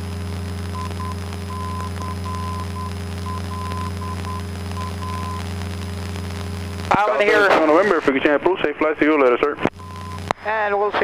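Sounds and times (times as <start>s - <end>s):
morse code beeps: 0.8s - 5.5s, 9.8s - 10.3s.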